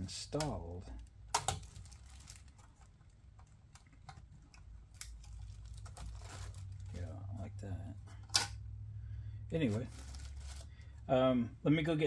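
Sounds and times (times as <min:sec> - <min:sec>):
faint low hum: 0:00.0 - 0:12.0
soft rustling: 0:05.2 - 0:08.2, 0:09.6 - 0:11.0.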